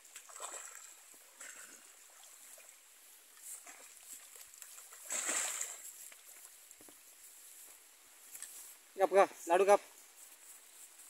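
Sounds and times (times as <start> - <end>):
deer splashing in muddy water: 0.0 - 7.4.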